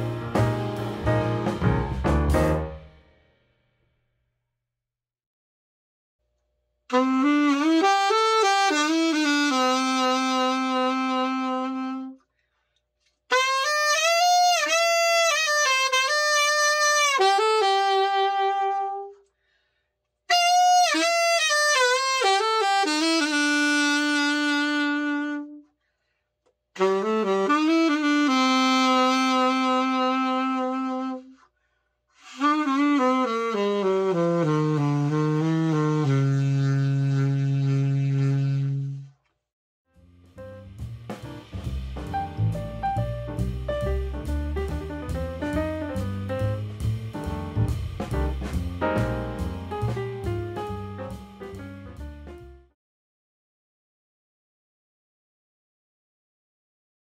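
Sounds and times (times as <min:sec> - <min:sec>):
alto saxophone melody: 0:06.9 - 0:12.3, 0:13.3 - 0:19.3, 0:20.3 - 0:25.7, 0:26.8 - 0:31.4, 0:32.2 - 0:39.2, 0:40.0 - 0:52.8.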